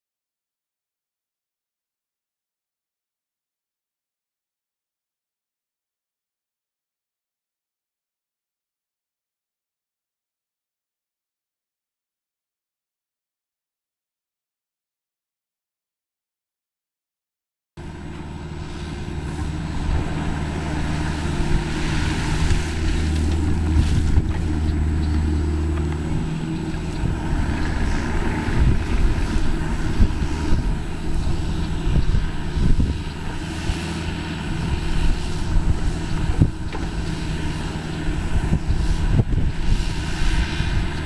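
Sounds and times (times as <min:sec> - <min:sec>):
diesel engine running: 0:17.8 - 0:41.0
wind buffeting microphone: 0:17.8 - 0:41.0.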